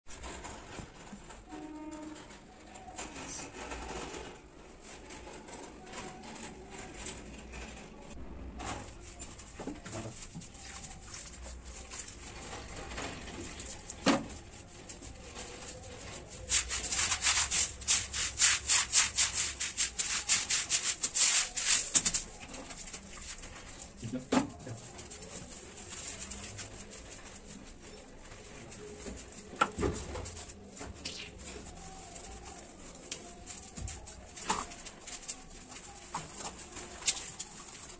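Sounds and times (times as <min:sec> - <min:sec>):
quiet handling sounds: 0:00.1 - 0:37.9
broom scrubbing wet concrete: 0:13.5 - 0:37.9.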